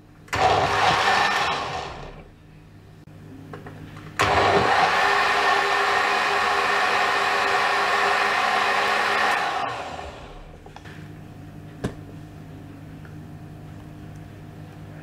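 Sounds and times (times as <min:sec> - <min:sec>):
blender motor running: 0:00.4 - 0:02.3, 0:04.2 - 0:10.6.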